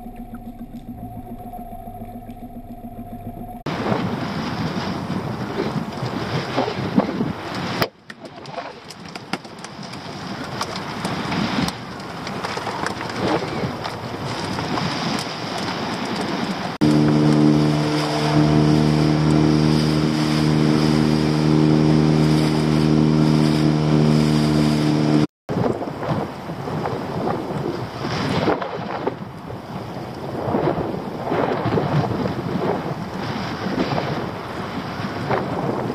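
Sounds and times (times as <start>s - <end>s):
outboard motor running: 0.0s - 3.9s, 16.5s - 25.3s
wind on microphone: 0.0s - 35.9s
sea waves: 13.2s - 35.9s.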